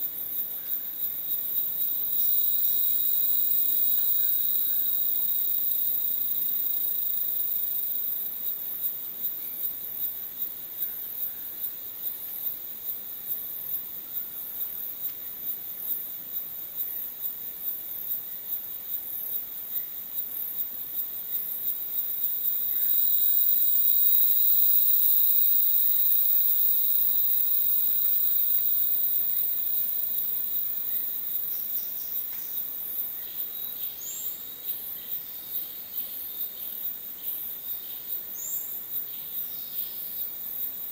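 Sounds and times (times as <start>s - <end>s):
high-pitched insect trill: 0.0s - 40.9s
high-pitched insect whines: 0.1s - 10.1s, 19.3s - 40.9s.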